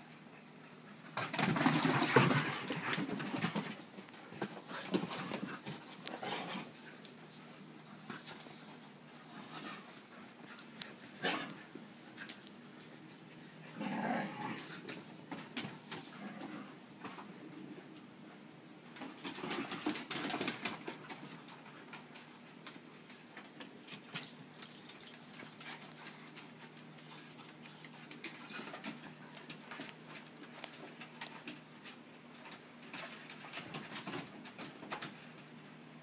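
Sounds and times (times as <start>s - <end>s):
dogs growling: 5.0s - 7.3s, 13.3s - 15.0s, 16.1s - 17.4s.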